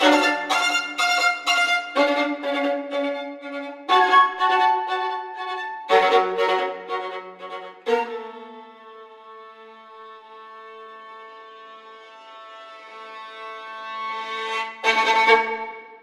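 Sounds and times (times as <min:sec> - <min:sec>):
violin playing slow bowed notes: 0:00.0 - 0:16.0.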